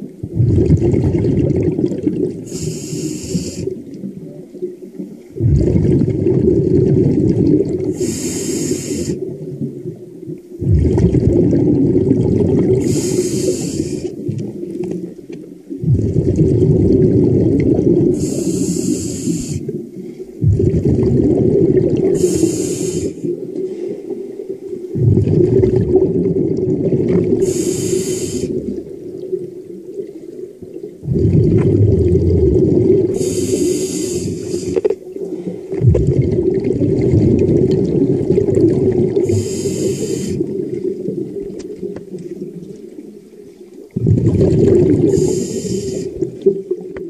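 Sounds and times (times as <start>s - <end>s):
exhaled bubbles rushing: 0.0s - 47.0s
regulator inhale hiss: 2.4s - 3.8s, 7.9s - 9.2s, 12.8s - 14.2s, 18.1s - 19.8s, 22.1s - 24.2s, 27.4s - 28.8s, 33.1s - 35.7s, 39.2s - 40.5s, 45.0s - 46.3s.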